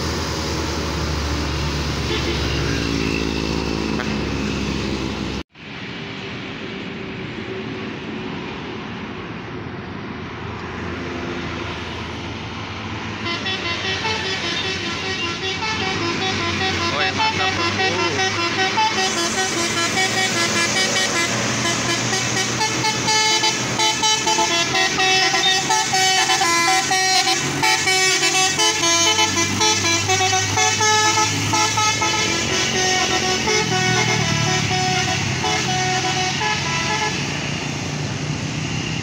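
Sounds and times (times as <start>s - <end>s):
diesel truck engine: 0.0s - 39.0s
musical air horn tune: 13.2s - 37.3s.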